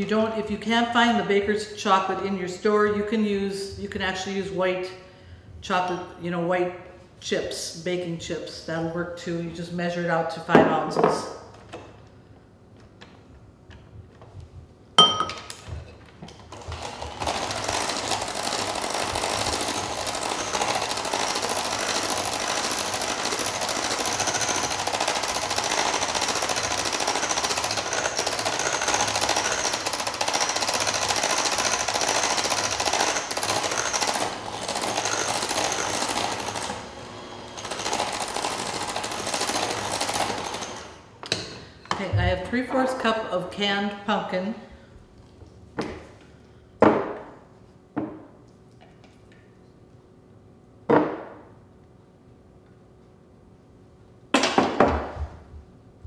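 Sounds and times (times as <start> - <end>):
electric hand mixer running: 16.4 - 41.1.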